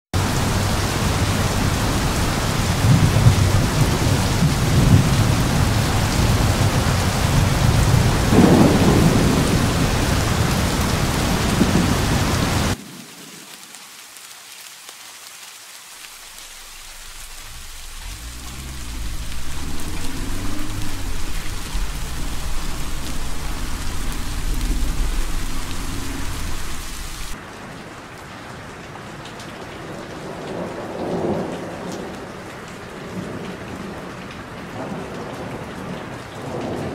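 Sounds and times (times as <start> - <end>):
thunder rumbling: 0.2 - 12.8, 16.3 - 27.4
heavy rain falling: 0.2 - 36.9.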